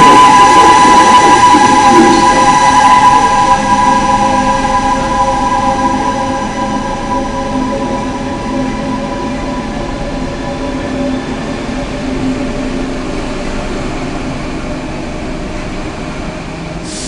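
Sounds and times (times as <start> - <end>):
train rumble: 0.0 - 17.0
train whine of steady tones: 0.0 - 17.0.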